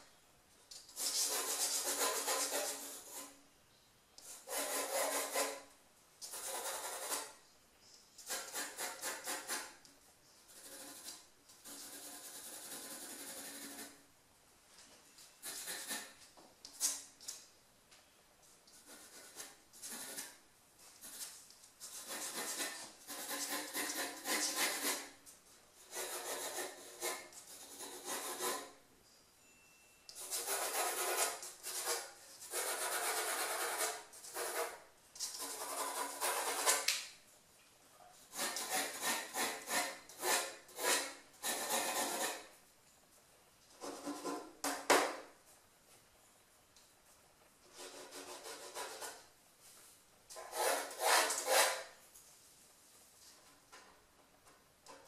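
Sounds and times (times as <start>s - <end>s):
pencil scratching on paper: 0.9s - 3.4s, 4.2s - 5.7s, 6.3s - 7.4s, 8.2s - 9.8s, 10.5s - 14.0s, 15.4s - 16.2s, 18.7s - 25.2s, 25.8s - 28.8s, 30.2s - 36.9s, 38.2s - 42.5s, 47.7s - 49.3s, 50.4s - 51.9s.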